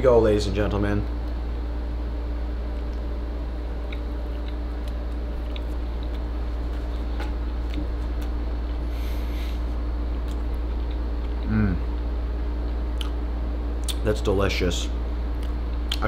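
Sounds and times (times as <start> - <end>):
steady low hum: 0.0 - 16.0
chewing crunches: 3.8 - 8.9.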